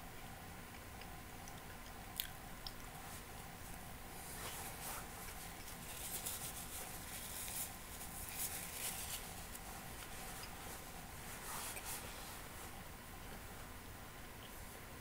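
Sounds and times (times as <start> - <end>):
person chewing bread: 0.7 - 3.0.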